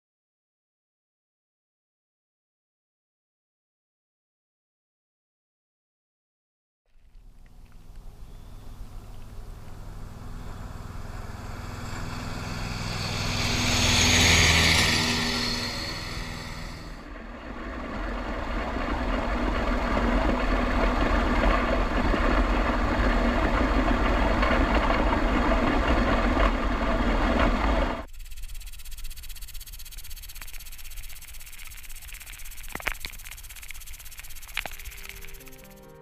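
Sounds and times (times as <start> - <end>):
engine-like rumble: 6.9 - 35.8
dense noisy rumble: 7.0 - 35.7.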